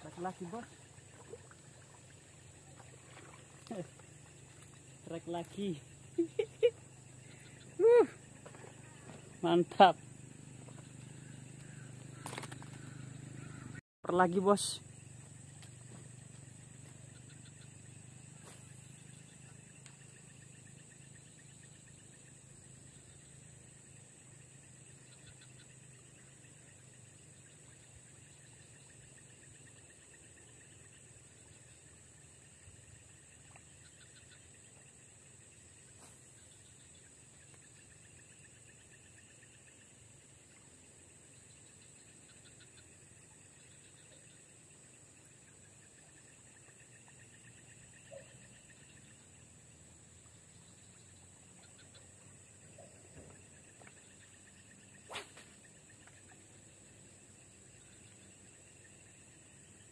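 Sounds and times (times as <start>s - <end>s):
high-pitched insect drone: 0.0s - 40.6s.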